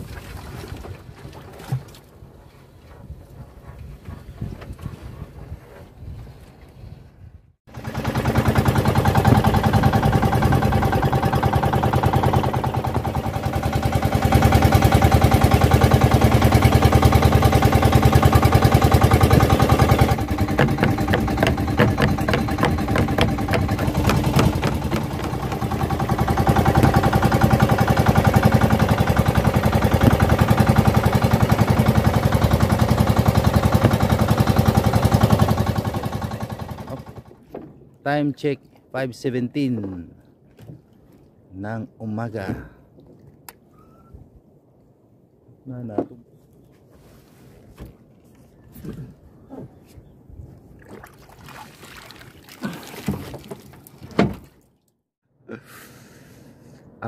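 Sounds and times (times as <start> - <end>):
boat engine puttering: 7.7 - 38.4.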